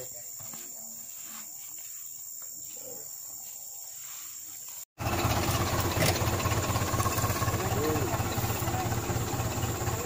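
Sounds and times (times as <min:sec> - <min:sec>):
truck engine idling: 0:05.0 - 0:10.0.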